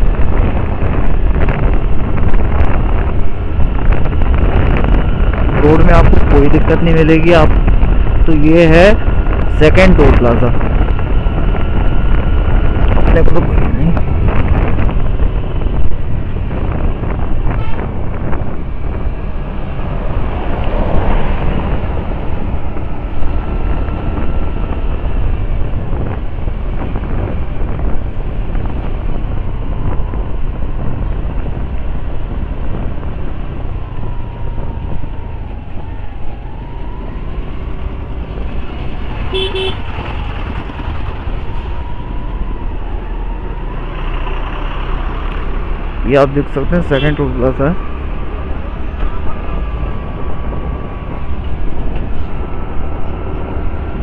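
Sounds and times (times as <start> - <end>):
scooter road noise: 0.0 - 54.0
traffic: 0.0 - 54.0
wind rumble: 0.0 - 54.0
vehicle horn toot: 17.5 - 17.9, 39.3 - 39.9.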